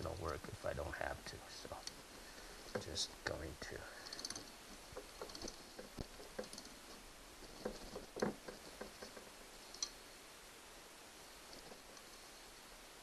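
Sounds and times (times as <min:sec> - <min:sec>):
ratchet wrench clicking: 0:04.0 - 0:06.8.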